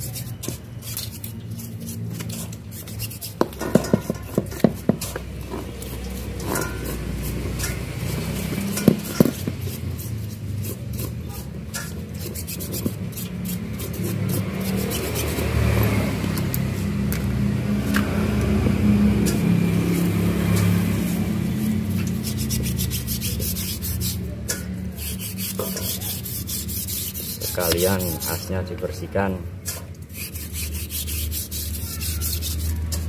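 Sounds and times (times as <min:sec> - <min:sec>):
brush scrubbing metal in liquid: 0:00.0 - 0:33.0
steady engine hum: 0:00.0 - 0:33.0
metal knocking against basin: 0:03.4 - 0:05.8.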